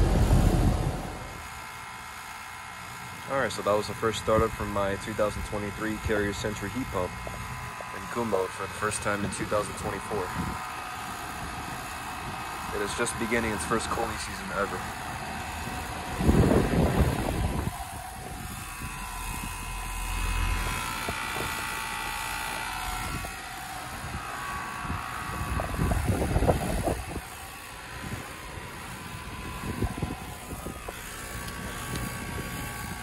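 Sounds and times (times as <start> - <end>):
air gusts buffeting microphone: 0.0 - 1.5, 15.4 - 21.8, 23.0 - 33.0
high steady tones: 0.0 - 1.5
heat pump fan and compressor hum: 0.0 - 33.0.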